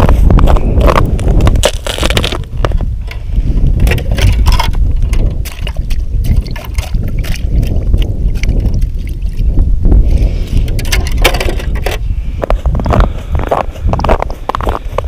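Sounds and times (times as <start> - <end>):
wind rumble on microphone: 0.0 - 15.0
wet crackling and knocks: 0.8 - 3.2, 3.8 - 9.4, 10.7 - 12.0.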